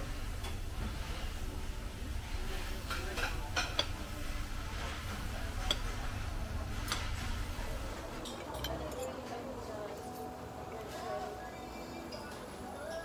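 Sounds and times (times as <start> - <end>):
cutlery clinking on plates: 2.8 - 4.0, 8.1 - 9.5.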